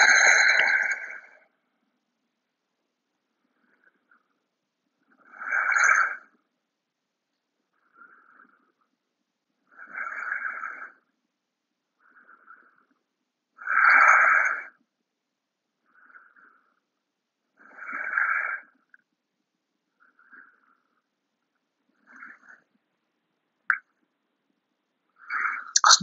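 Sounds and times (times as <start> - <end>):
person breathing slowly: 12.0 - 13.0.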